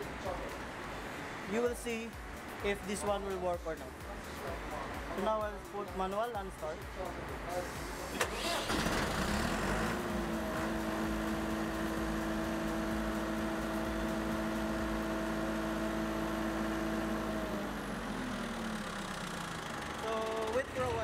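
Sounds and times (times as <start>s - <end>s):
diesel generator running: 7.6s - 21.0s.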